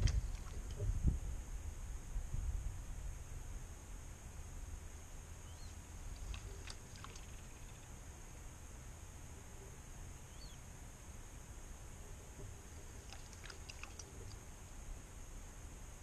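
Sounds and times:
low wind rumble on microphone: 0:00.0 - 0:13.1
steady high hiss: 0:00.0 - 0:16.0.

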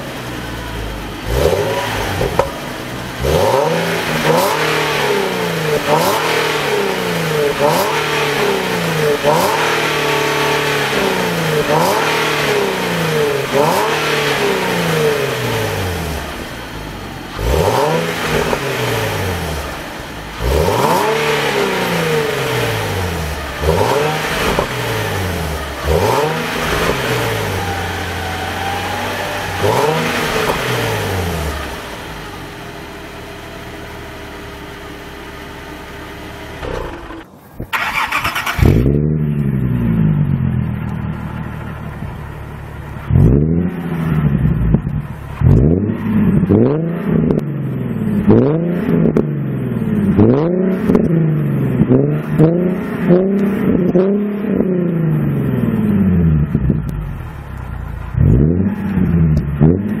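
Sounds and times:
car engine revving and idling: 0:00.0 - 1:00.0
quick throttle blips: 0:36.6 - 0:39.0.

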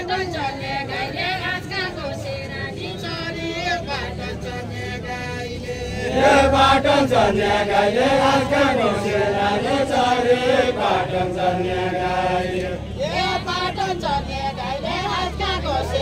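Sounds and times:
group of voices chanting: 0:04.0 - 0:16.0.

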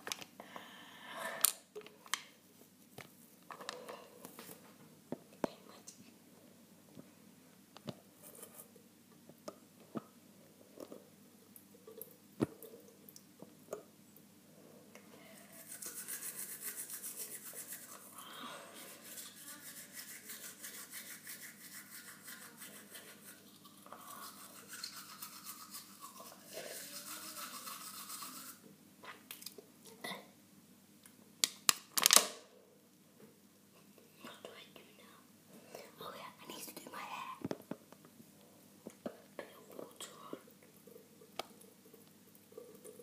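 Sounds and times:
toothbrush scrubbing teeth: 0:15.4 - 0:28.6.

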